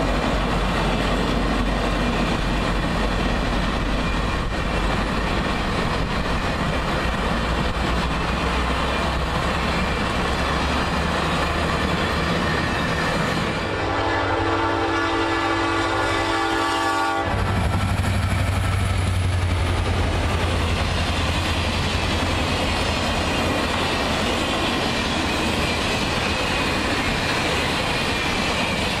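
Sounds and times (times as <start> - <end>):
train cars rumbling past: 0.0 - 29.0
locomotive air horn: 13.6 - 17.4.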